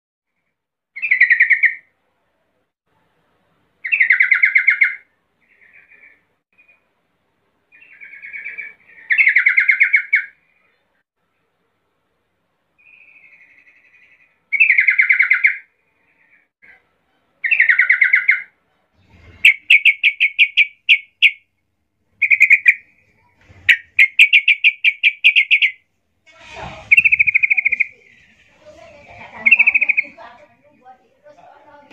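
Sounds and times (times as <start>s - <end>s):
bulbul singing bubbly phrases: 26.8s - 31.9s.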